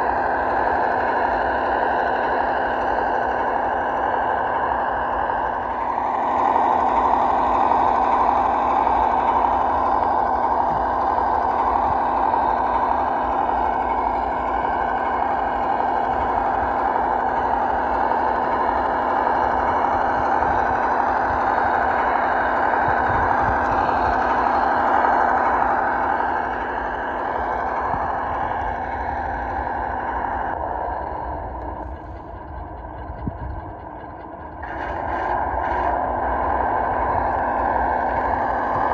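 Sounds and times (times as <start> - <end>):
simulated truck engine running: 0.0 - 38.9.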